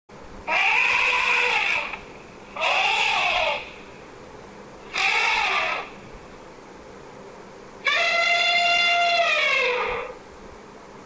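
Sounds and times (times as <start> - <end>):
elephant trumpeting: 0.5 - 3.9, 4.8 - 6.0, 7.8 - 10.2.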